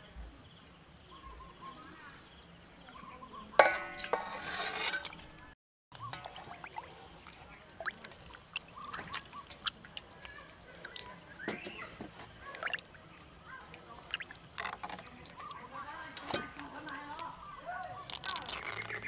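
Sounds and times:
water sloshing in a steel bowl: 0:03.6 - 0:05.4, 0:06.0 - 0:19.0
small splashes and drips: 0:06.0 - 0:11.2, 0:12.4 - 0:15.6, 0:16.2 - 0:19.0.

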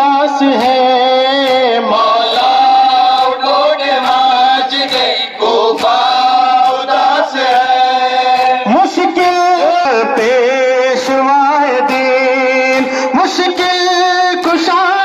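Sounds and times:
men chanting in chorus: 0:00.0 - 0:15.0
chest-beating slaps: 0:00.4 - 0:09.6.

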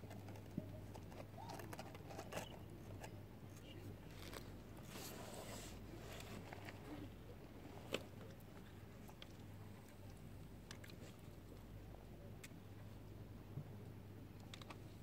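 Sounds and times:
small clicks and rustles: 0:00.0 - 0:05.2, 0:06.1 - 0:07.2, 0:14.4 - 0:15.0
low steady hum: 0:00.0 - 0:15.0.

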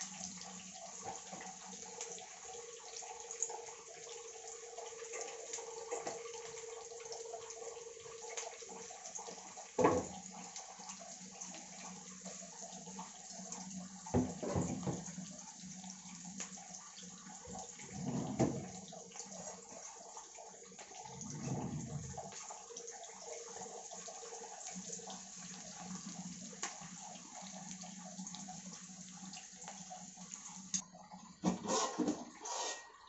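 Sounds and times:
onions sizzling in oil: 0:00.0 - 0:17.8, 0:23.3 - 0:30.8.

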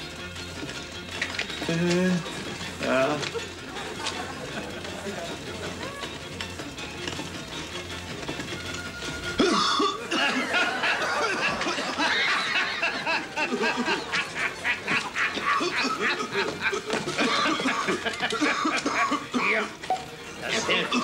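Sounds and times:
man laughing heartily: 0:09.5 - 0:19.7.

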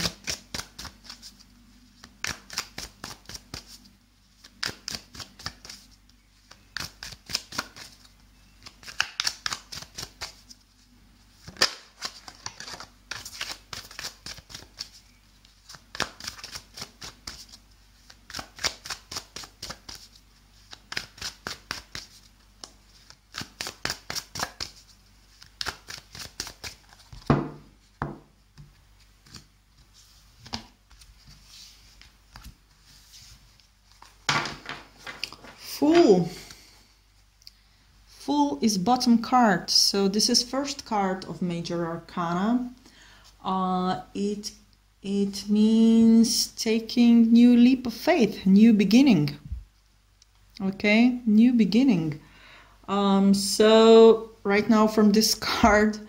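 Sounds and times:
cards shuffling: 0:00.0 - 0:01.4, 0:02.0 - 0:10.6, 0:11.4 - 0:15.0, 0:15.6 - 0:36.6
cards knocking on table: 0:27.2 - 0:28.3, 0:34.3 - 0:35.2.

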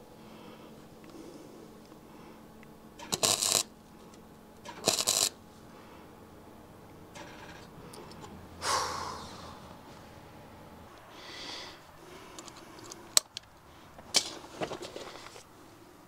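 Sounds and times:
welder arcing crackle: 0:03.0 - 0:05.4.

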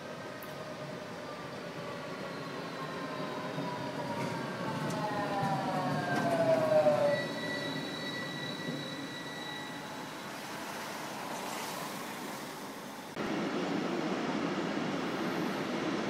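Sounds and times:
tram whine passing: 0:00.0 - 0:16.0
wheels squealing: 0:01.9 - 0:10.8.

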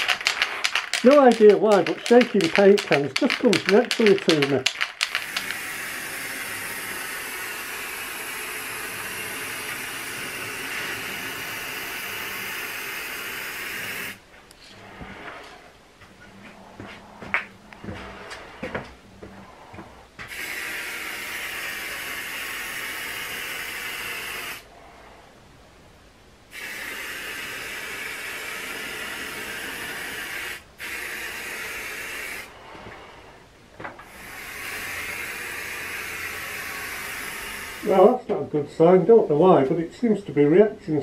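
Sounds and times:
spray paint can hissing: 0:00.0 - 0:14.2, 0:20.3 - 0:24.6, 0:26.5 - 0:32.5, 0:34.1 - 0:38.0.

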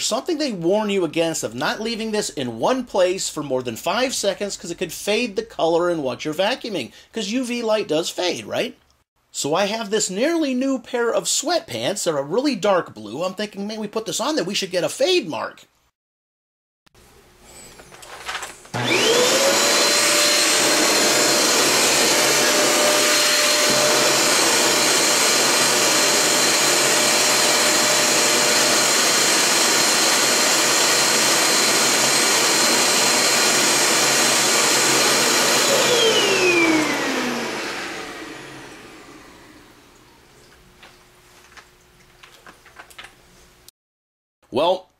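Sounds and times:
vacuum cleaner motor whine: 0:18.8 - 0:40.0.

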